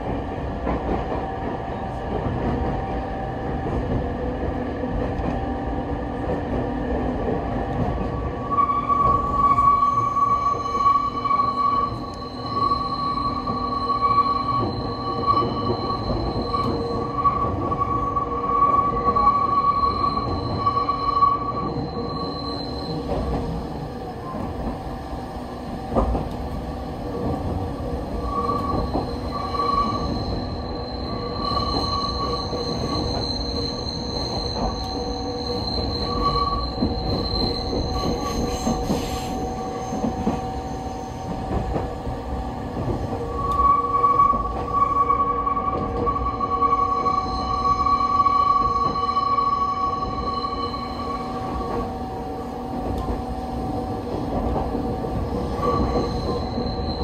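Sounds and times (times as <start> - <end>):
train rumbling: 0.0 - 57.0
train wheels squealing on rails: 0.0 - 57.0.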